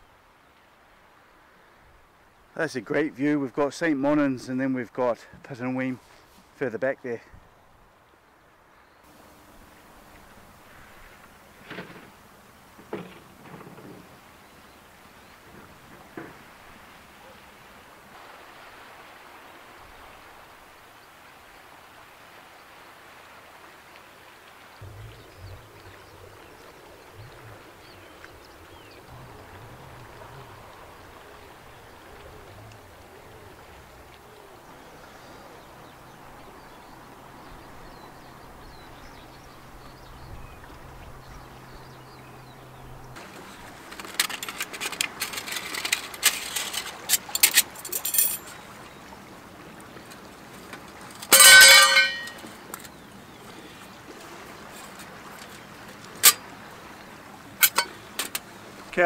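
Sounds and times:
outdoor background: 0.0 - 59.0
steel plates clinking and rattling: 43.2 - 48.6, 51.1 - 52.5, 56.2 - 56.4, 57.6 - 58.4
ringing metallic clatter: 43.9 - 48.6, 51.2 - 52.5, 57.6 - 58.4.

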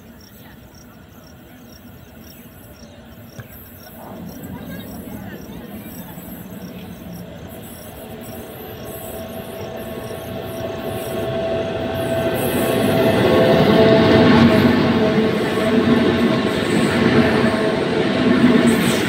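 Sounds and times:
locomotive passing rumble and whine: 0.0 - 19.0.

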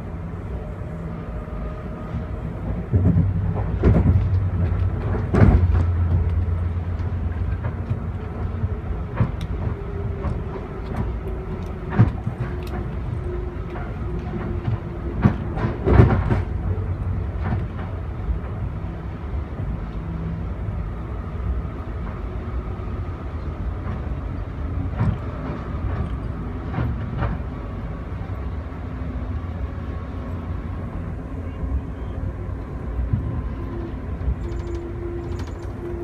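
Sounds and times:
train coach rumbling on track: 0.0 - 36.0
wheels knocking on rails: 2.9 - 16.7.

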